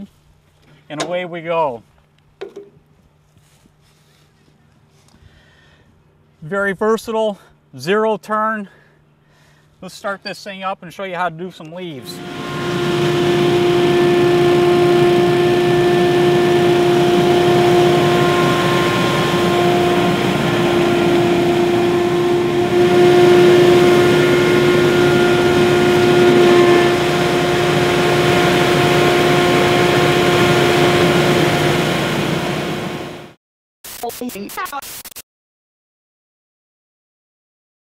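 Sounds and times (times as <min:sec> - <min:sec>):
leaf blower whining: 0:11.9 - 0:33.4.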